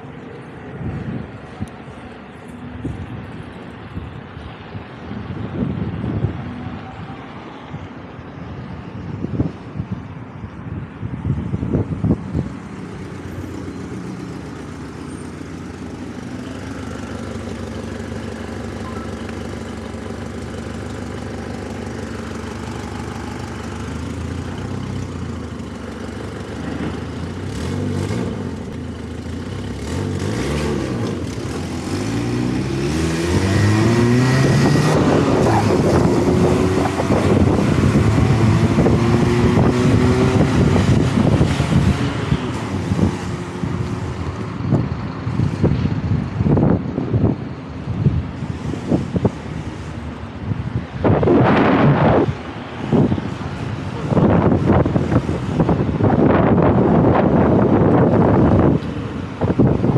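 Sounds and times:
electric motorcycle hum and whine: 0:00.0 - 0:59.9
wind noise on microphone: 0:00.4 - 0:15.2, 0:29.5 - 0:59.9.

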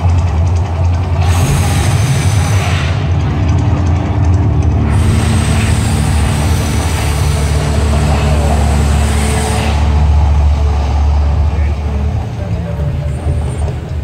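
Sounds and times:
deep steady rumble: 0:00.0 - 0:14.0.

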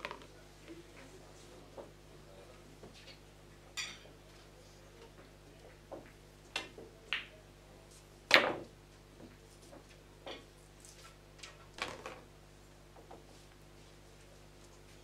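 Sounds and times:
pool balls clacking: 0:00.0 - 0:00.3.

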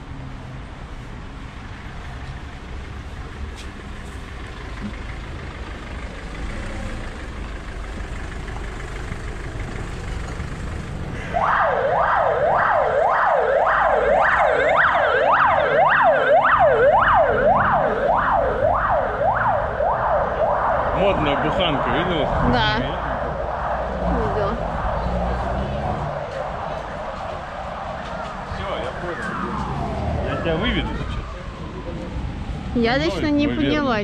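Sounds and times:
street traffic: 0:00.0 - 0:34.0
ambulance siren yelping: 0:11.2 - 0:34.0.

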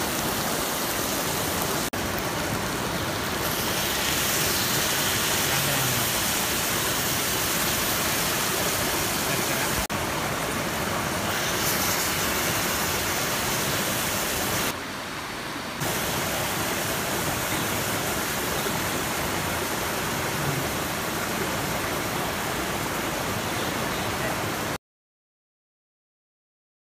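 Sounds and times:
shrimp sizzling on griddle: 0:03.0 - 0:09.8, 0:11.3 - 0:14.7.

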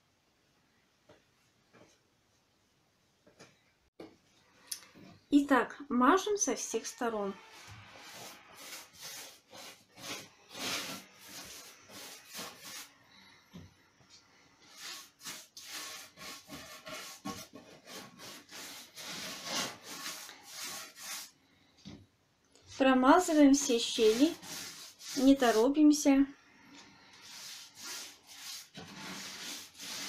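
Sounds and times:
paintbrush scrubbing on wood: 0:06.8 - 0:13.0, 0:14.6 - 0:21.4, 0:23.1 - 0:25.9, 0:27.1 - 0:30.0.

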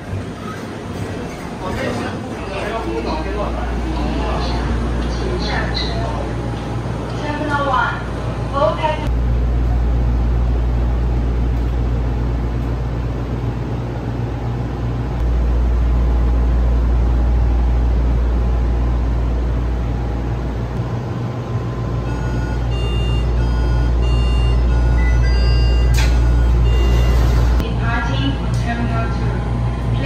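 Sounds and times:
train cabin rumble and hum: 0:00.0 - 0:30.0
short electronic beeps: 0:22.1 - 0:27.4.

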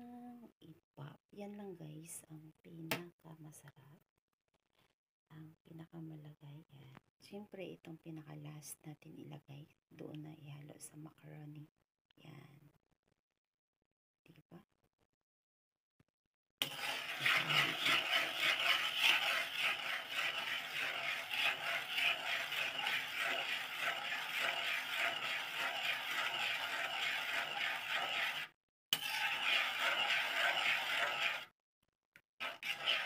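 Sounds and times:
metal tongs scraping a bowl: 0:16.6 - 0:31.5, 0:32.4 - 0:33.0.

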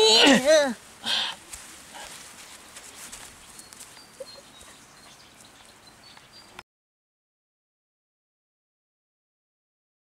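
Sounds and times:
high bird chirps: 0:02.9 - 0:06.6.

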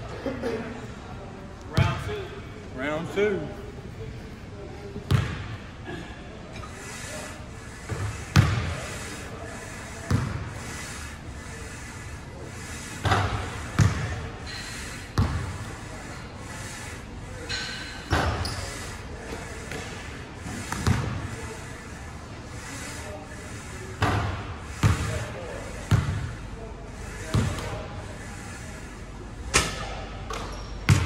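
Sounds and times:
basketballs bouncing on wood floor: 0:13.8 - 0:14.0.

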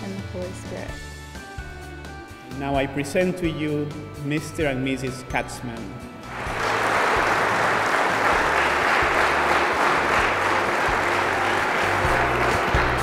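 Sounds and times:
low music: 0:00.0 - 0:13.0
congregation applauding: 0:06.2 - 0:13.0.

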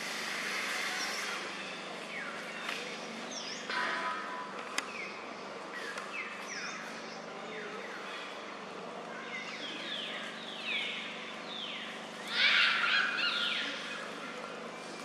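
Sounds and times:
high-pitched animal cries: 0:12.3 - 0:13.8.

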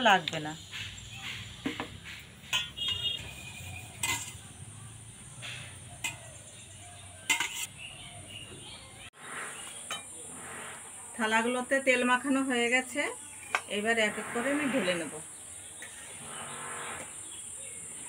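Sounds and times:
steel plates clinking: 0:02.4 - 0:04.5, 0:07.3 - 0:07.7.

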